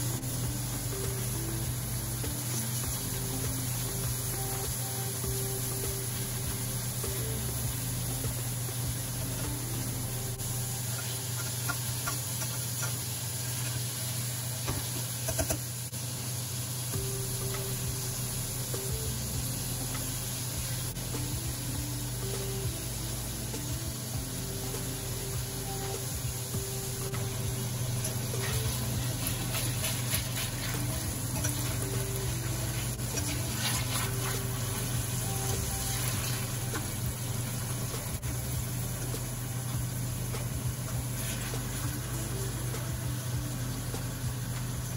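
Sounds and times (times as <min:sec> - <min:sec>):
fish sizzling in oil: 0:00.0 - 0:44.9
steady low hum: 0:16.9 - 0:44.9
metal spatula scraping a pan: 0:28.0 - 0:34.9.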